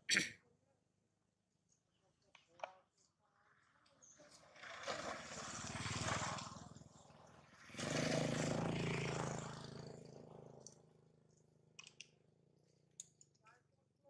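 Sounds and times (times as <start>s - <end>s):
motorbikes passing by: 4.0s - 11.8s.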